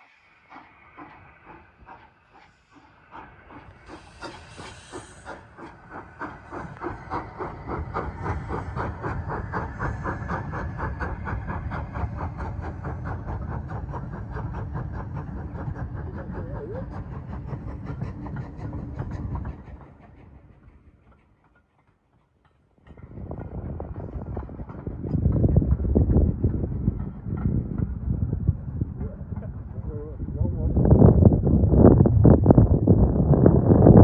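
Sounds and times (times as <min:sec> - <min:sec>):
steam hiss: 0:00.0 - 0:20.2
passing train rumble: 0:00.0 - 0:34.0
steam locomotive exhaust beats: 0:00.0 - 0:34.0.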